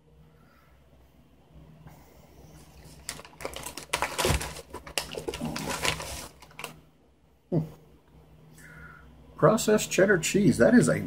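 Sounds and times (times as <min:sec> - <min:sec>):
foil and plastic packaging crinkling: 0:02.6 - 0:06.8.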